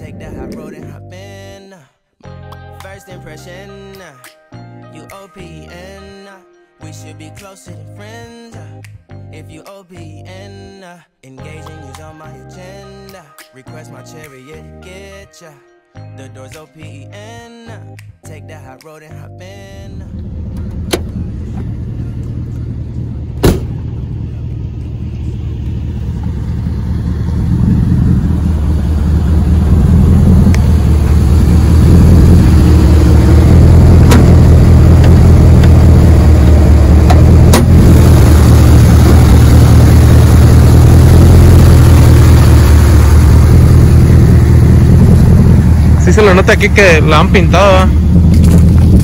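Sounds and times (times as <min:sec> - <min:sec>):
pickup engine and road noise: 0:00.0 - 0:01.6, 0:19.5 - 0:49.0
door shutting: 0:23.4 - 0:23.8.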